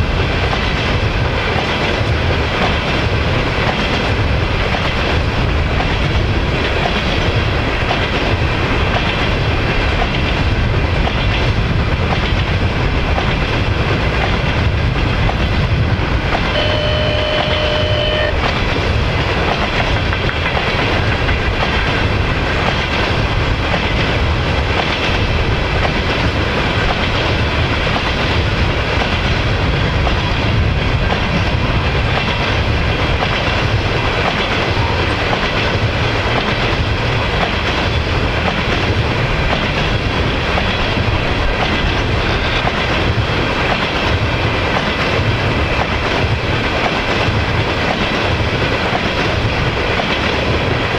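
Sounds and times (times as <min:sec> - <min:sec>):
train rumbling past: 0:00.0 - 0:50.9
steady tone: 0:16.5 - 0:18.5.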